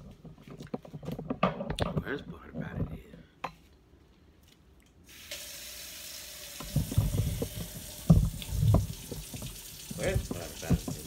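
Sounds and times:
faucet turned on: 5.1s - 11.0s
water running into steel sink: 5.1s - 11.0s
things knocking in sink: 6.6s - 11.0s.

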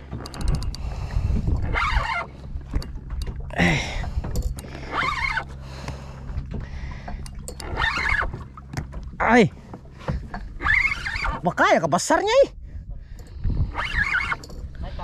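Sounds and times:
reel clicks: 0.0s - 8.9s, 13.1s - 14.9s
boat engine humming: 0.0s - 15.0s
fishing reel cranking: 0.1s - 3.4s, 4.3s - 5.6s, 7.1s - 8.3s, 13.2s - 14.9s.

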